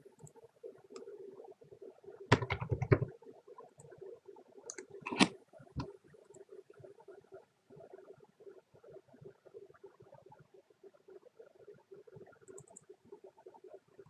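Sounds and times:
faint steady hum: 0.0s - 14.0s
keyboard typing: 2.3s - 3.1s, 4.7s - 5.3s
clicks: 4.7s - 5.4s.

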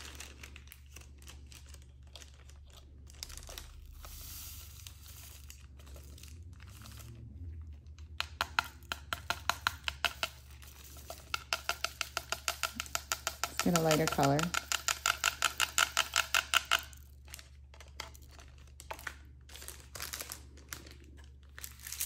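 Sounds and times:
plastic bag crinkling: 0.0s - 8.0s, 16.9s - 22.0s
beads clicking in plastic tray: 7.9s - 19.2s.

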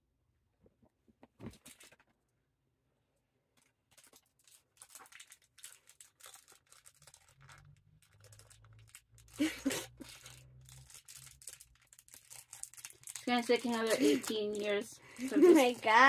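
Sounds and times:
plastic package crinkling: 3.6s - 16.0s.

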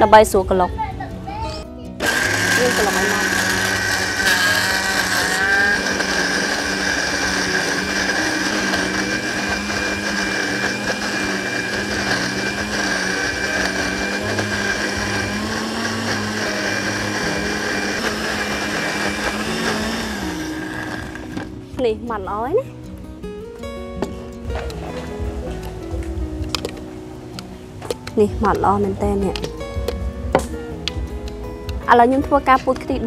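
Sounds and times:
blender running: 2.0s - 21.6s.

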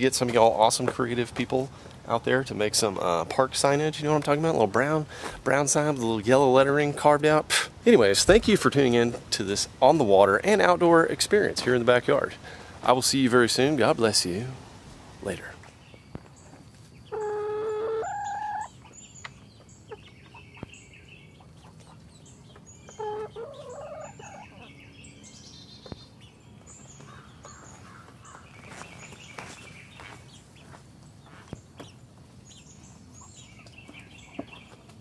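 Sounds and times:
chickens calling: 16.1s - 35.0s.

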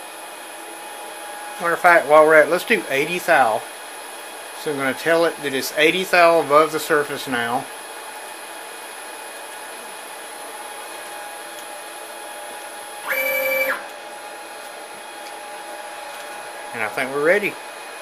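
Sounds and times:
steady machine hum: 0.0s - 18.0s
stepper motor whining: 13.0s - 13.9s.

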